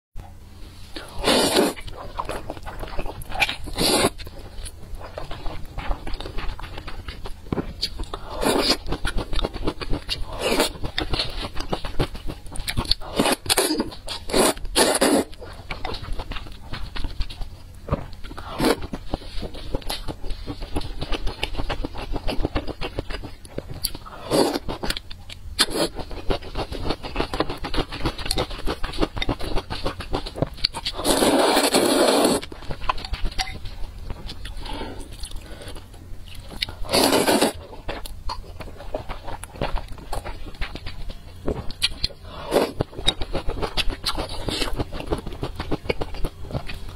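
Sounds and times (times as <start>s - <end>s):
wet chewing and smacking: 1.0s - 46.9s
slurping noodles: 1.1s - 1.9s, 3.7s - 4.2s, 13.0s - 15.3s, 24.2s - 24.6s, 30.9s - 32.5s, 36.8s - 37.6s.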